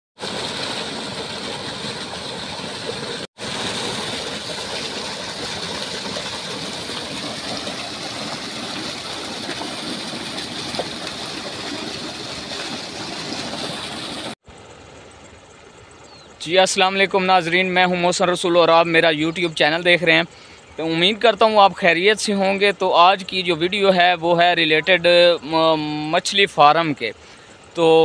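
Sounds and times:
water pouring into pond: 0.2s - 14.4s.

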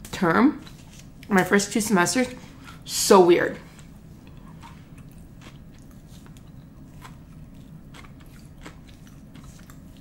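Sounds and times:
person chewing food: 3.7s - 10.0s.

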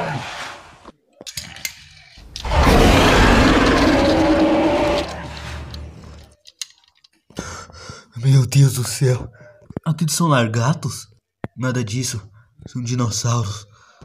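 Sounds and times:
long rough roar: 2.4s - 6.0s
plastic toys clicking: 3.6s - 7.3s.

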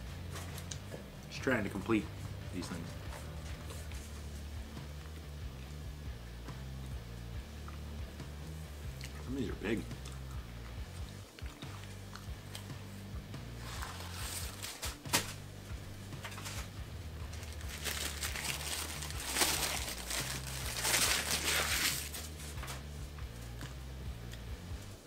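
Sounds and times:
paper wrapper crinkling and tearing: 13.6s - 15.4s, 16.2s - 16.7s, 17.3s - 22.9s.

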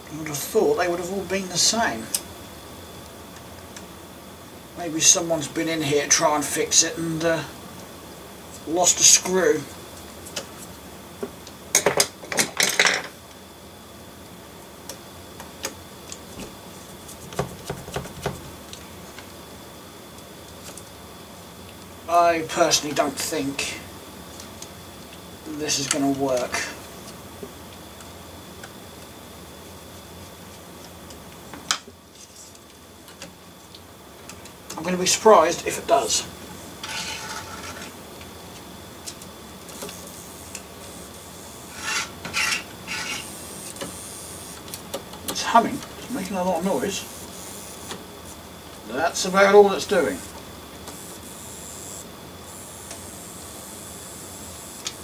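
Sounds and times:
small electric motor humming: 35.8s - 55.0s
short scraping rub: 36.8s - 37.9s, 41.7s - 43.3s.

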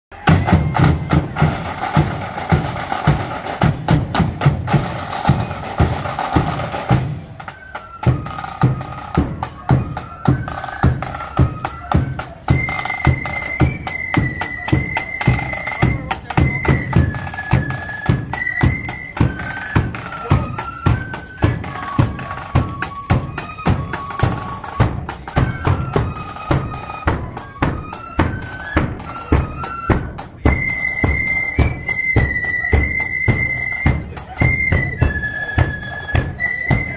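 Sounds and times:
flutes playing a melody: 0.1s - 36.9s
side drums: 0.1s - 36.9s.

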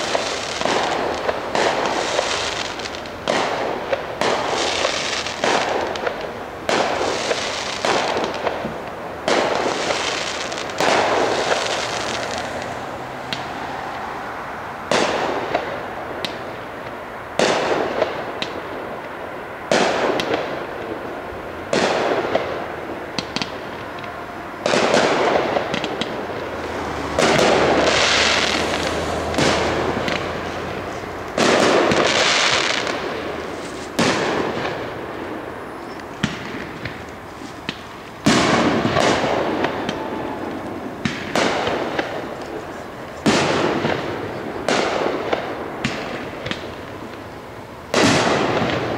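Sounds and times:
firework hiss: 0.0s - 6.0s, 9.3s - 14.0s, 24.7s - 47.3s
firework shells bursting: 24.7s - 35.0s.

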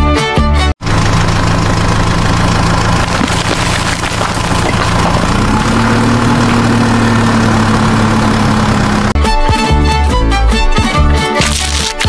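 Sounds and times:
tractor engine idling: 0.8s - 9.2s
sand being tipped out: 11.4s - 12.0s.

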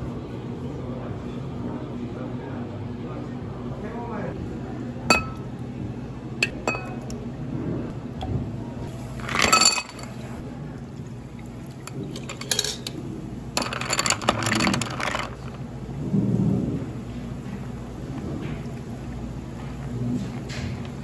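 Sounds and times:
ice cubes clattering into glass: 13.6s - 15.6s.

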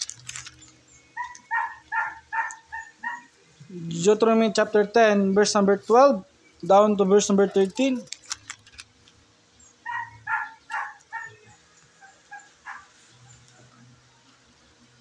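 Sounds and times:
dog barking: 1.2s - 3.3s, 9.8s - 13.0s.

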